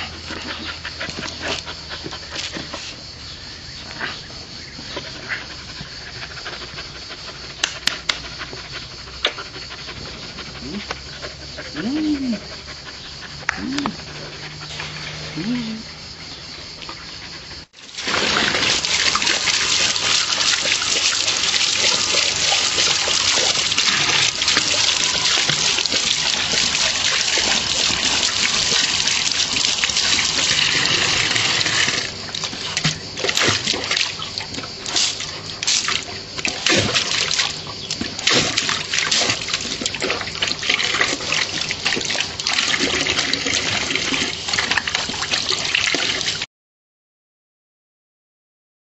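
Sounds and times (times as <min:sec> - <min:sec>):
puppy drinking and splashing: 0:00.0 - 0:04.2, 0:16.8 - 0:46.5
tap water running into metal bowl: 0:17.8 - 0:32.1.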